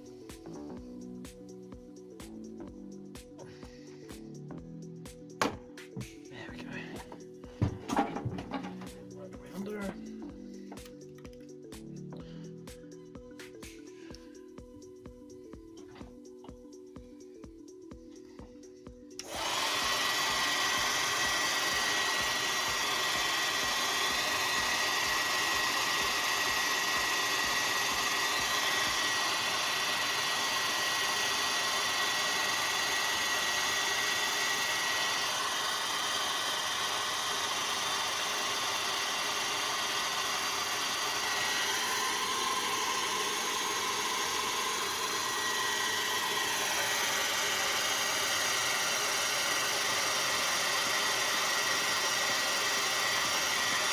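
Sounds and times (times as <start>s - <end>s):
heat gun air rush and whine: 18.2s - 53.9s.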